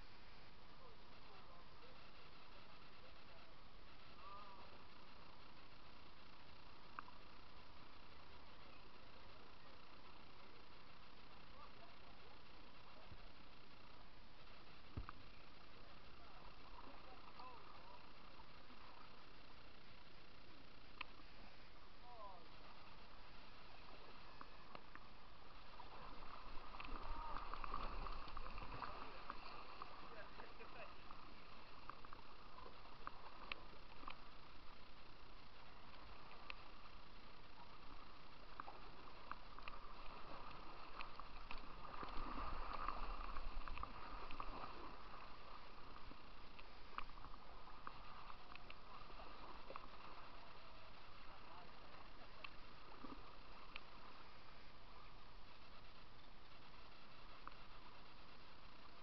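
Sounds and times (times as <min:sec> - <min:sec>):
water splashing against kayak: 0:20.8 - 0:59.0.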